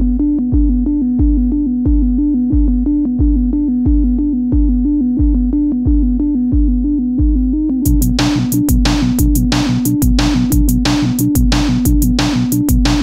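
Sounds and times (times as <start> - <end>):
electronic music: 0.0 - 13.0.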